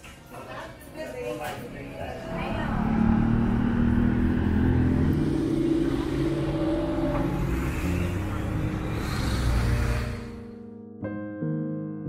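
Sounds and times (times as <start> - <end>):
vehicle engine accelerating: 1.7 - 10.6.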